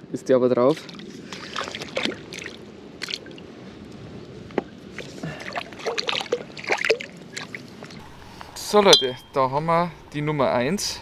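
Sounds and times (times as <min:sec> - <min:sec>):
water splashing and dripping: 0:00.7 - 0:03.4, 0:05.0 - 0:08.0.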